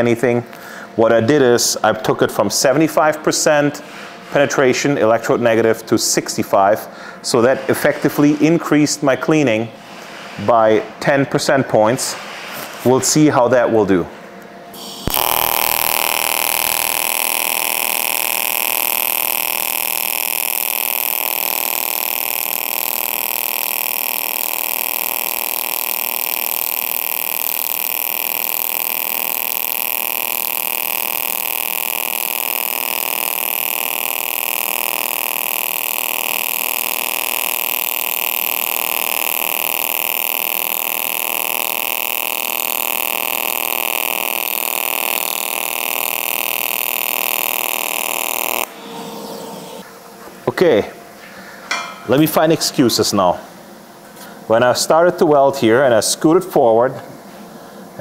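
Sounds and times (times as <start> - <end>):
welding arc buzzing and hissing: 14.7 - 49.9.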